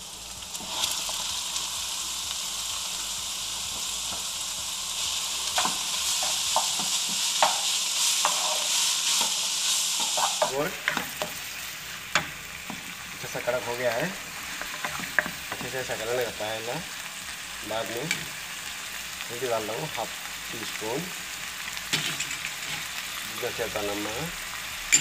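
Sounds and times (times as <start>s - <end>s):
food sizzling in hot oil: 0.0s - 25.0s
spoon scraping a pan: 5.6s - 13.6s, 14.4s - 16.0s, 21.8s - 23.0s.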